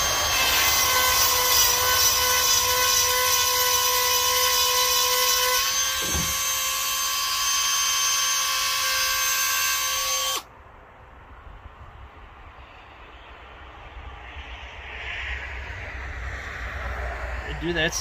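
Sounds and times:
rotary grinder whining: 0.0s - 10.5s.

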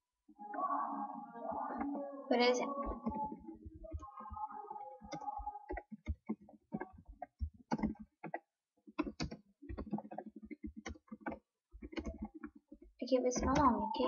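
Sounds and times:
typing on computer keyboard: 5.0s - 13.8s.

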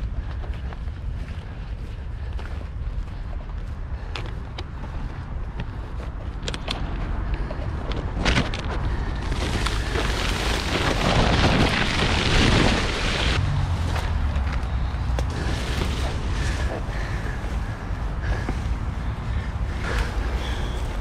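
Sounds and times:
steady low rumble: 0.0s - 21.0s
leaves and twigs rustling: 6.6s - 21.0s.

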